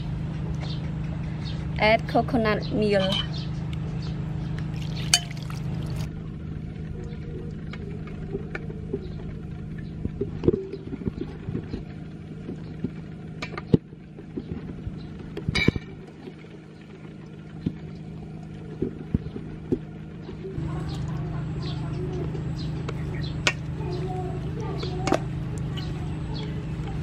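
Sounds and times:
steady low hum: 0.0s - 27.0s
utensils clinking in metal bowl: 4.8s - 6.1s.

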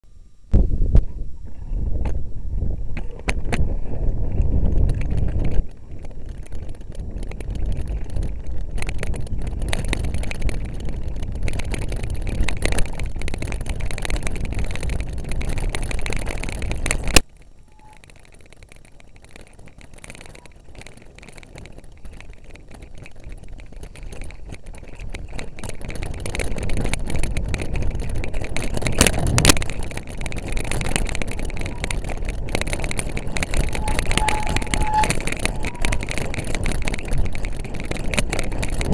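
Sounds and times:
wind rushing past bike camera: 0.5s - 38.9s
bike rattling over bumpy ground: 0.6s - 38.9s.

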